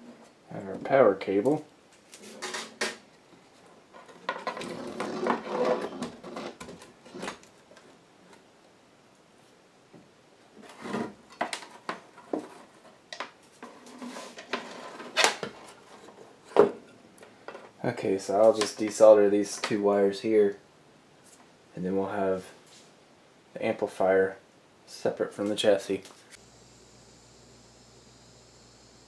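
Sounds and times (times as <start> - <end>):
metal chassis scraping on wood: 4.1 - 7.4.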